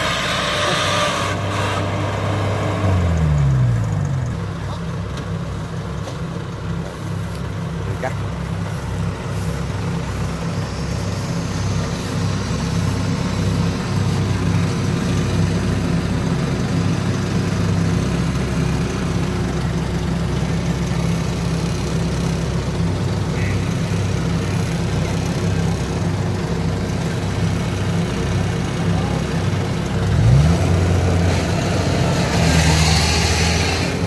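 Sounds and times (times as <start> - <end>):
diesel engine running: 0.0 - 34.0.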